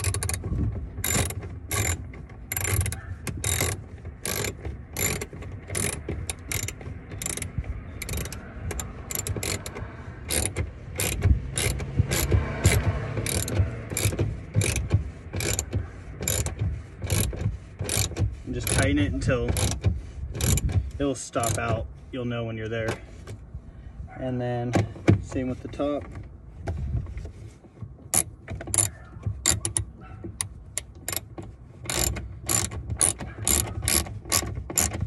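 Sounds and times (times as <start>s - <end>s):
ratchet wrench clicking: 0.0s - 0.4s, 1.0s - 20.8s, 21.4s - 21.7s, 28.1s - 35.0s.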